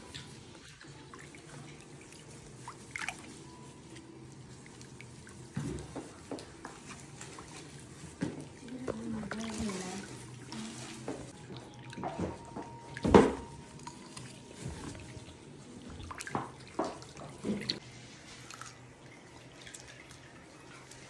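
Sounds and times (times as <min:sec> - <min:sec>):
water splashing in tub: 0:02.0 - 0:03.4, 0:07.3 - 0:17.8.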